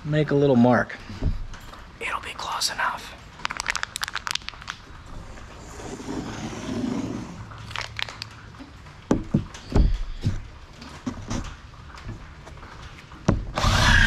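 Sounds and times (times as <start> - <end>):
sharp wooden knocks: 9.1 - 10.4.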